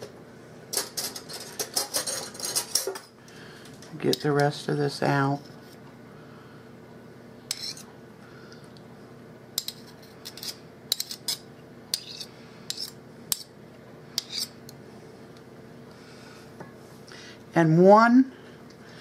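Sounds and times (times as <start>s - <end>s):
metal spoon scraping a bowl: 7.5s - 7.9s, 9.6s - 13.5s, 14.2s - 14.6s.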